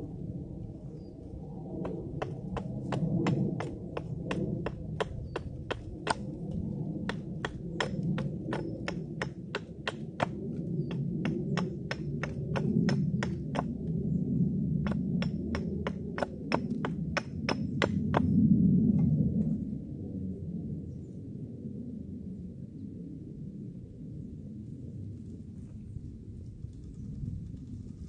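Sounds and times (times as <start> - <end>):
steady low rumble: 0.0 - 28.0
hammer striking: 2.2 - 6.2, 7.1 - 13.7, 14.9 - 18.3.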